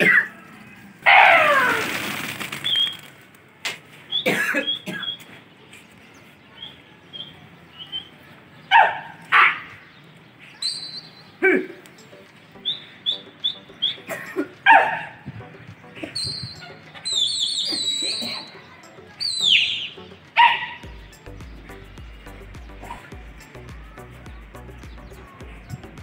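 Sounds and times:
pigeon wings clattering: 1.1s - 3.9s
small high chirps: 10.6s - 14.1s, 15.8s - 25.1s.

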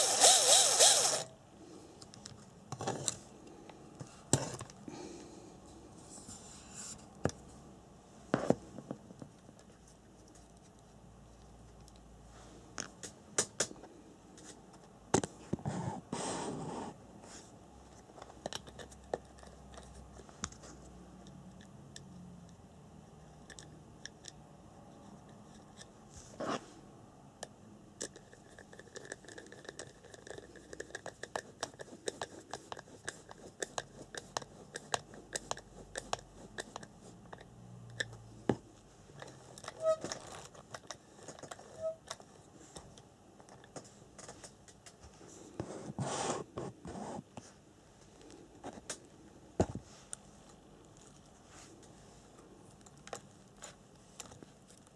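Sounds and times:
tools clicking and scraping: 0.0s - 1.3s.

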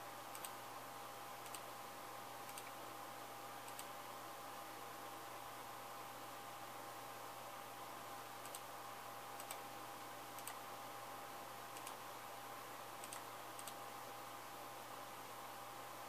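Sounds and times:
faint hiss and hum: 0.0s - 16.0s
computer mouse button clicking: 2.5s - 2.7s.

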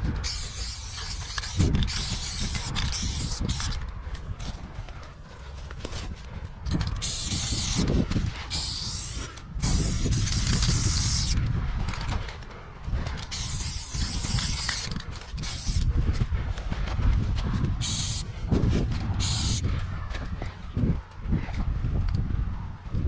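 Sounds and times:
low rumble: 0.0s - 23.0s
spray paint can hissing: 0.2s - 3.8s, 6.9s - 7.9s, 8.5s - 11.4s, 13.3s - 15.8s, 17.8s - 18.2s, 19.2s - 19.6s.

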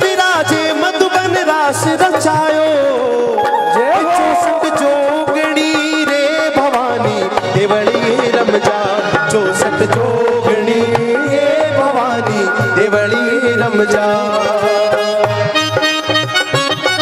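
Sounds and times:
harmonium melody: 0.0s - 17.0s.

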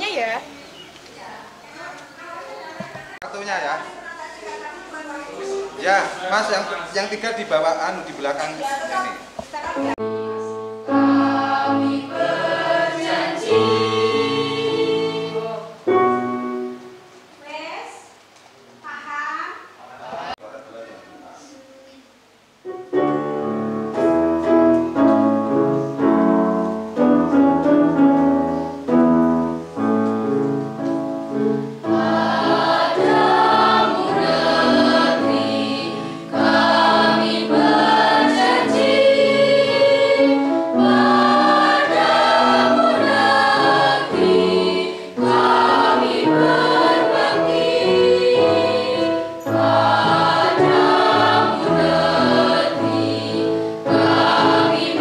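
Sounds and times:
instrumental accompaniment: 9.8s - 17.2s, 22.6s - 55.0s
choir singing: 9.9s - 16.8s, 31.4s - 55.0s.

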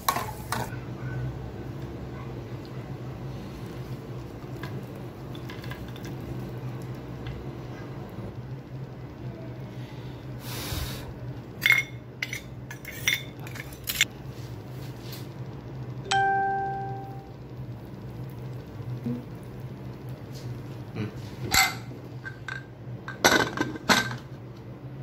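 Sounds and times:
steady low hum: 0.0s - 25.0s
ringing ding: 16.1s - 17.3s.

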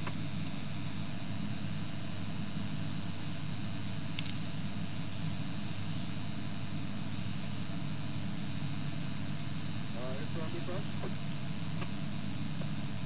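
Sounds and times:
low even hum: 0.0s - 13.0s
faint insect chirps: 3.6s - 13.0s
steady hiss: 3.6s - 13.0s.

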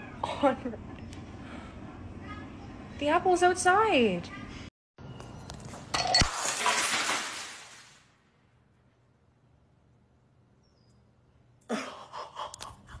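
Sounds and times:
glass shattering on stone: 5.9s - 8.0s.

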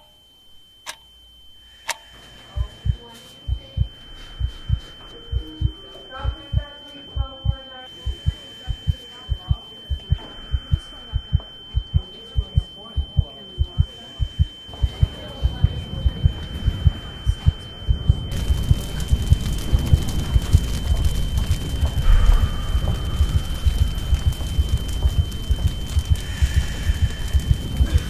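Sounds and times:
steady high-pitched tone: 0.0s - 28.0s
heartbeat thumps: 2.5s - 28.0s
rushing noise: 18.3s - 28.0s.

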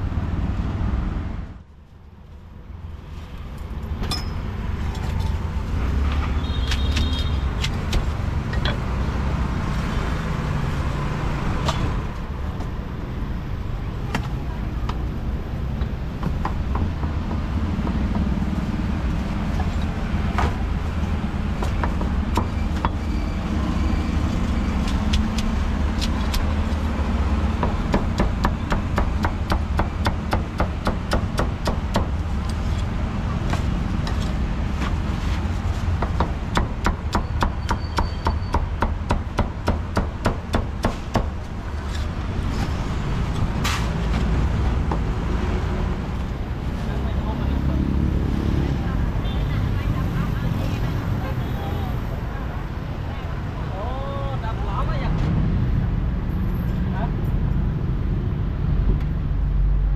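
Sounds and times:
road traffic rumbling: 0.0s - 59.9s
cleaver chopping on wooden block: 27.6s - 32.2s, 36.0s - 41.4s.

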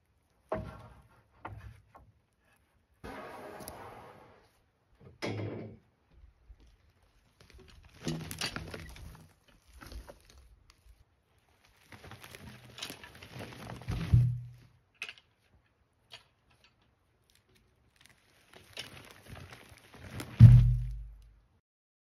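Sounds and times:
logs rolling and scraping: 0.0s - 21.5s
log thudding onto rails: 0.5s - 2.1s, 12.4s - 15.2s, 19.5s - 21.3s.

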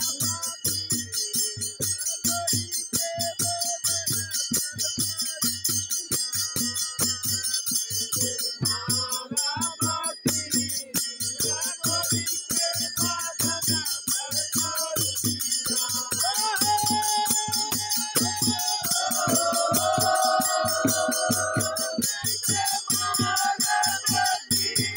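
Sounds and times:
group of men singing folk song: 0.0s - 24.9s
hand cymbals jingling: 0.0s - 24.9s
steady drum beat: 0.0s - 24.9s.

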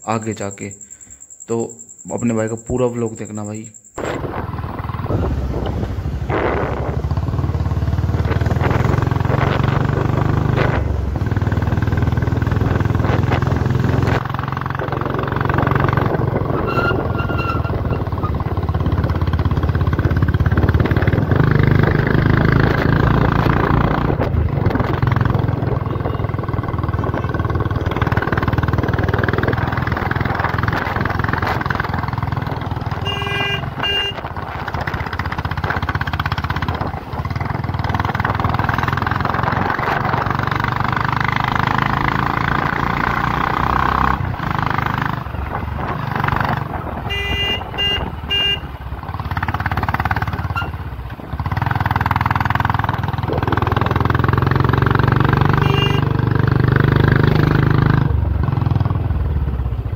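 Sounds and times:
short high-pitched beeps: 0.1s - 4.0s
motorcycle engine running: 4.0s - 59.9s.

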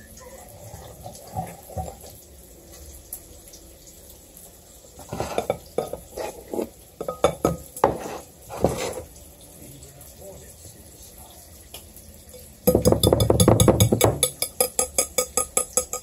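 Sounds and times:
whisk clinking against bowl: 12.7s - 16.0s.

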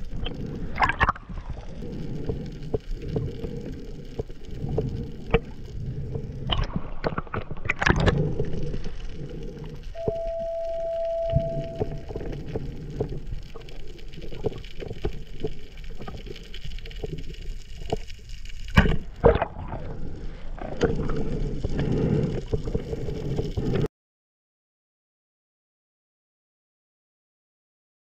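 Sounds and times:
underwater rush: 0.0s - 23.9s
steady tone: 10.0s - 13.0s.

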